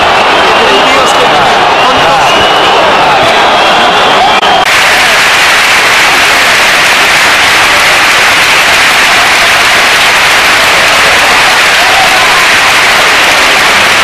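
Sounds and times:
stadium crowd roaring and clapping: 0.0s - 14.0s.

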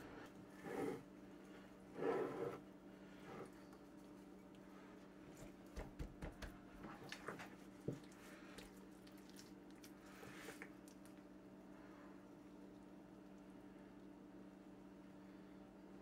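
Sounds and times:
low steady hum: 0.0s - 16.0s
wet squishes of raw meat: 6.8s - 11.2s.

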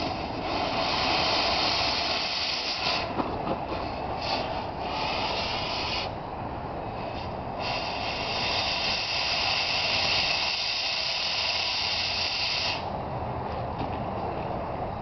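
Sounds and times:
cutting torch hissing: 0.0s - 3.2s, 4.2s - 6.2s, 7.0s - 12.9s.

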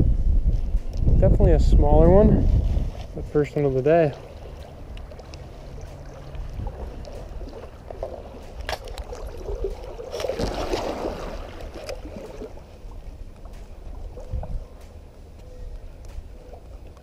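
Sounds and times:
wind rumble on microphone: 0.0s - 17.0s
river water sloshing and splashing: 2.5s - 14.4s
loud splash: 8.7s - 12.6s.

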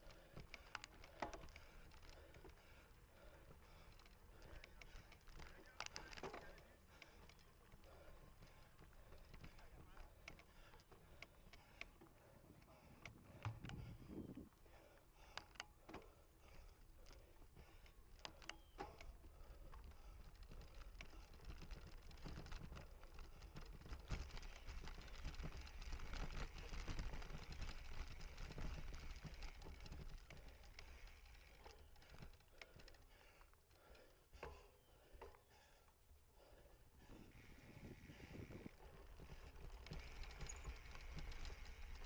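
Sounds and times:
bike clicks and rattles: 0.0s - 42.0s
tyre and wind noise: 13.2s - 14.5s, 37.2s - 42.0s.

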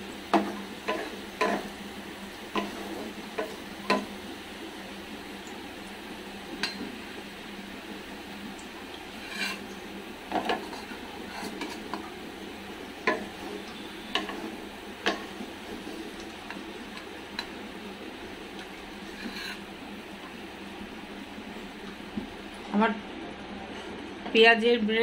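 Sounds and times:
oil sizzling: 0.0s - 24.4s
wooden spatula scraping metal pan: 9.2s - 9.7s, 10.4s - 12.0s, 19.0s - 19.7s.

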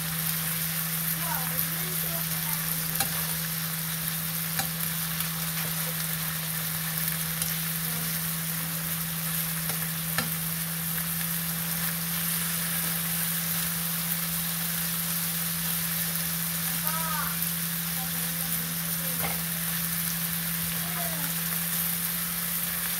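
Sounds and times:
food sizzling in a wok: 0.0s - 22.9s
metal tongs clicking against pan: 2.9s - 3.3s, 4.5s - 4.8s, 7.4s - 7.7s, 9.6s - 10.4s.

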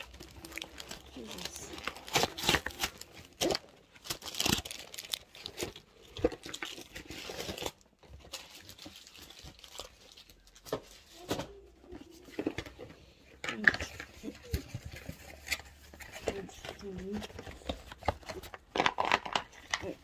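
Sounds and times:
packaging tearing and crumpling: 0.0s - 11.3s.

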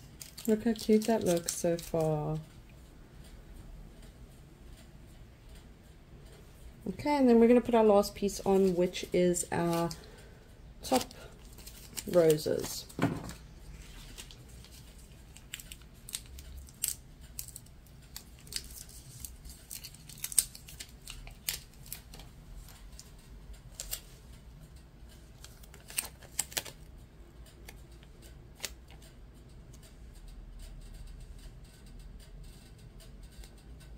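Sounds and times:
vinyl sheet peeling and crackling: 0.0s - 2.6s, 7.6s - 10.1s, 10.8s - 24.4s, 25.1s - 29.9s.

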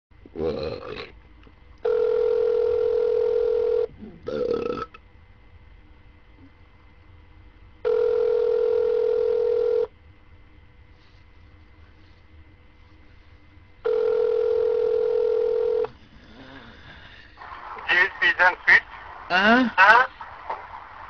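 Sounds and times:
telephone ringback tone: 1.8s - 3.9s, 7.8s - 9.9s, 13.8s - 15.9s.

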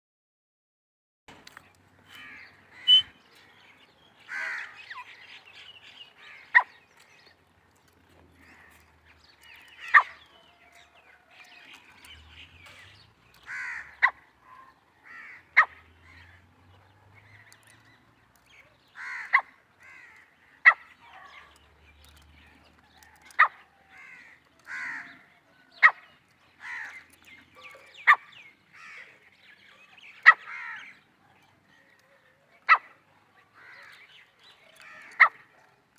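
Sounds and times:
francolin calling: 2.2s - 3.2s.

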